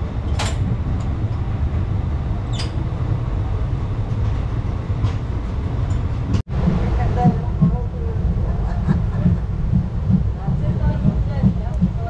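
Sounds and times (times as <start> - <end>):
train coach rumbling: 0.0 - 12.0
sharp clicks or squeaks: 2.5 - 2.8.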